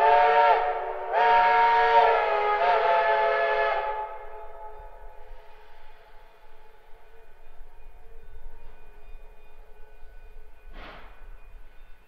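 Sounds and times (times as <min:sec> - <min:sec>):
steam locomotive whistle: 0:00.0 - 0:07.2.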